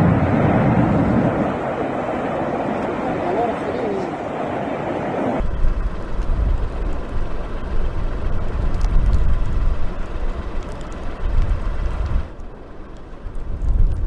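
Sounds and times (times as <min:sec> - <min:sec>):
volcano deep rumbling roar: 0:00.0 - 0:12.4
faint crackles: 0:05.4 - 0:14.0.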